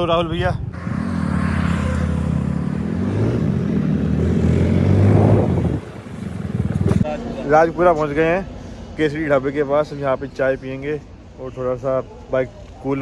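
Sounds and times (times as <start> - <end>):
motorcycle engine revving: 0.7 - 7.1.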